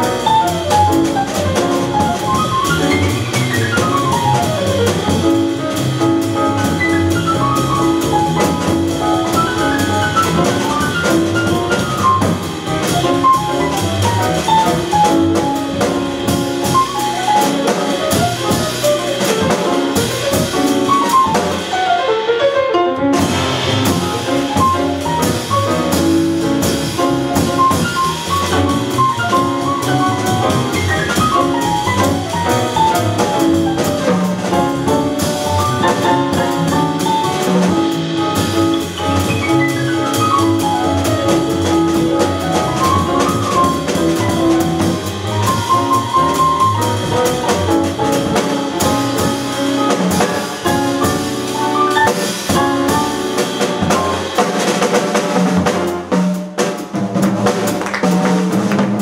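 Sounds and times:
double bass: 0:00.0 - 0:59.0
drum kit: 0:00.0 - 0:59.0
piano playing quick runs: 0:00.0 - 0:59.0.

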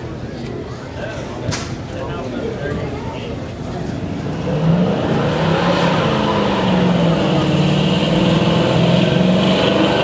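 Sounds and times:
car engine at high revs: 0:04.0 - 0:10.0.

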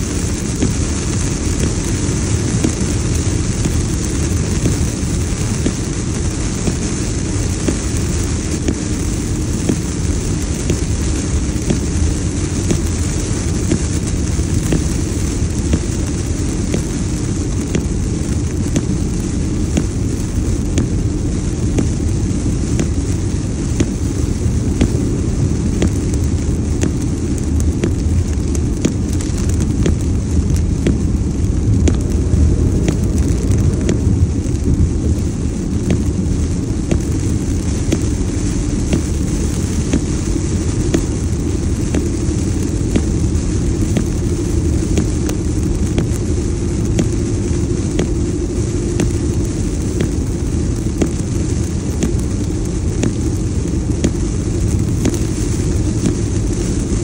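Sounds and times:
heavy rain on car windshield: 0:00.0 - 0:57.0
tyres rumbling on wet road: 0:00.0 - 0:57.0
wind: 0:00.0 - 0:57.0.

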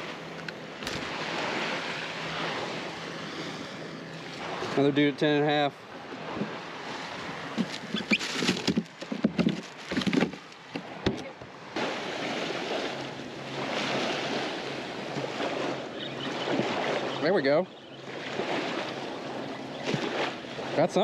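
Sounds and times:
small waves lapping: 0:00.0 - 0:21.0
fish knocking in plastic cooler: 0:07.6 - 0:11.2.

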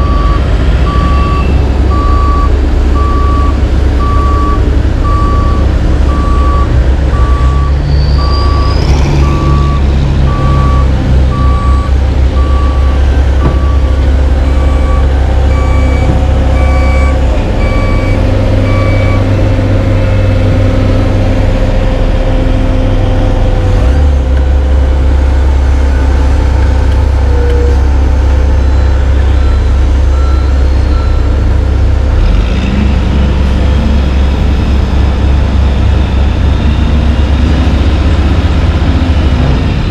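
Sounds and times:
backup alarm beeping: 0:00.0 - 0:19.3
deep diesel engine drone: 0:00.0 - 0:39.9.

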